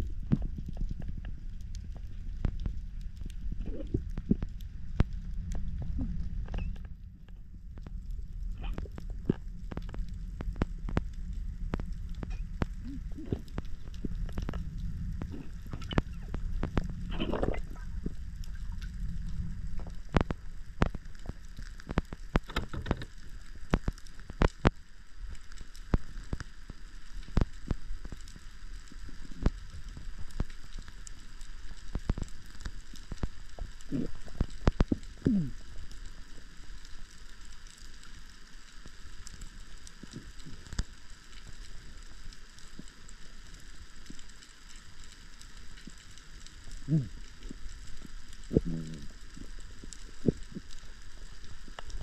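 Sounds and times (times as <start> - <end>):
low rumble: 0.0 - 23.1
underwater clicks and crackles: 0.0 - 52.0.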